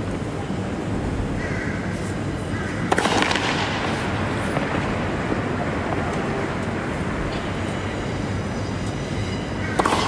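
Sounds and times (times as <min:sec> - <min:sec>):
crowd murmur: 0:04.1 - 0:07.2.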